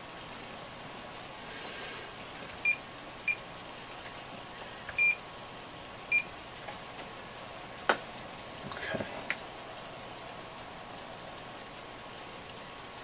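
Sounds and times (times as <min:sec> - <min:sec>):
multimeter beeping: 0:04.9 - 0:05.2.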